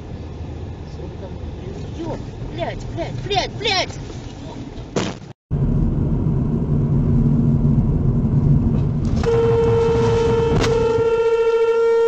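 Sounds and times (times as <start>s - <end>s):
car engine and road noise: 0.0s - 12.0s
car horn held tone: 9.2s - 12.0s.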